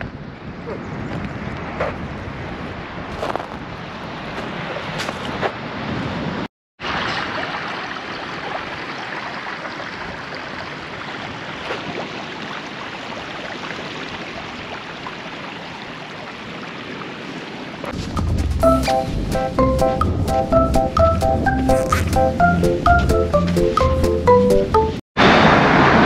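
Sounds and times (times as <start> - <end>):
ocean surf washing on shore: 1.4 - 18.2, 25.2 - 26.0
background music with a beat: 18.0 - 25.0.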